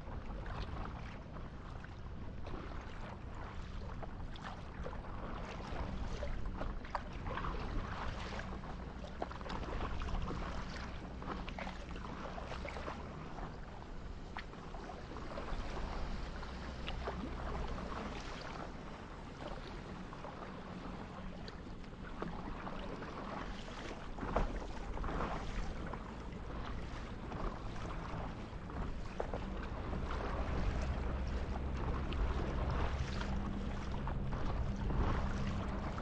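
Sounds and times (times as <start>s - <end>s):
water splashing against paddle board: 0.2s - 13.6s, 14.3s - 36.0s
low rumble: 24.1s - 36.0s.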